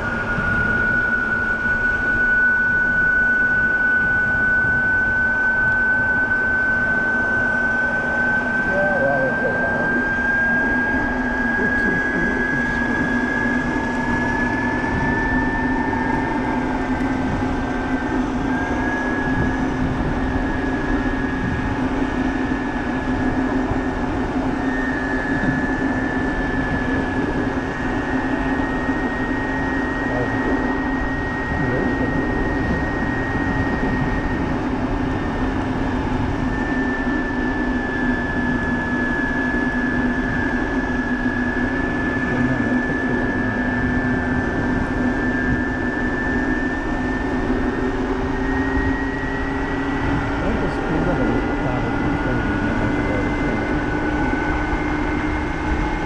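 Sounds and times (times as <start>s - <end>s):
electric motor whine: 0.0s - 56.0s
low hum: 0.0s - 56.0s
wind and road noise: 31.4s - 36.5s, 41.6s - 56.0s.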